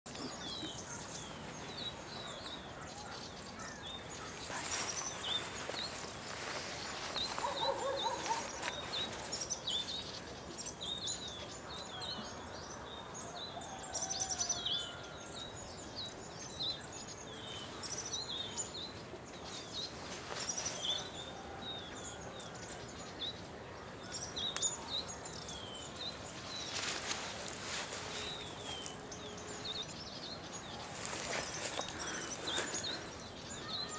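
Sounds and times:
bulbuls chirping: 0.1 - 12.4, 15.7 - 33.9
rustling: 26.4 - 29.0, 30.8 - 33.0.

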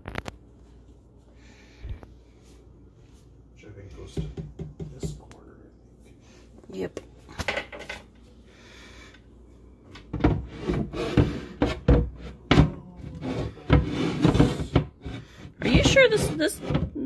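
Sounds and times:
wooden shelf knocking and thudding: 4.1 - 5.2, 10.0 - 17.0.

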